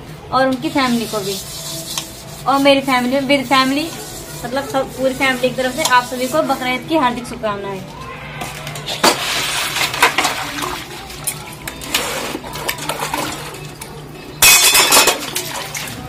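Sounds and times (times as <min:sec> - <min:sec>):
dishes clattering: 0:08.5 - 0:13.8, 0:14.4 - 0:15.9
water splashing: 0:08.5 - 0:13.8, 0:14.4 - 0:16.0
metal dishes clinking: 0:14.4 - 0:15.5.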